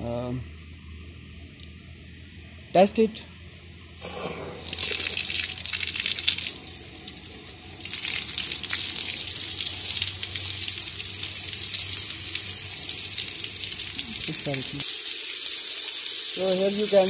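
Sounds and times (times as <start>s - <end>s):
hose water jetting and splashing: 4.0s - 17.0s.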